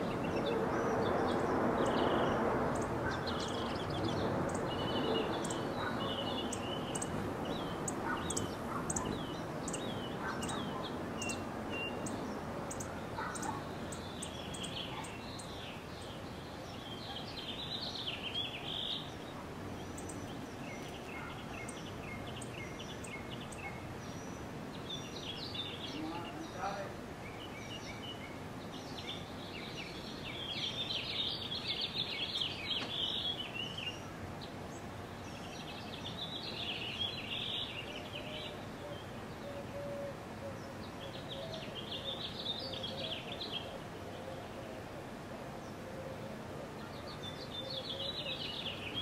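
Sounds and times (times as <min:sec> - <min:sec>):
warbled bird calls: 0:00.0 - 0:24.4
outdoor background hiss: 0:00.0 - 0:49.0.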